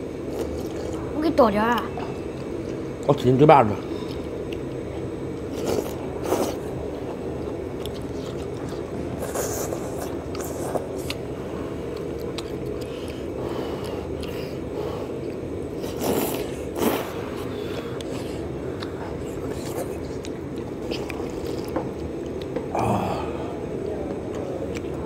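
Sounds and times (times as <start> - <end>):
steady low hum: 0.0 - 25.0
chewing: 0.2 - 1.1, 3.9 - 22.7, 24.1 - 25.0
people slurping noodles: 5.4 - 7.2, 7.9 - 21.8, 22.7 - 23.7.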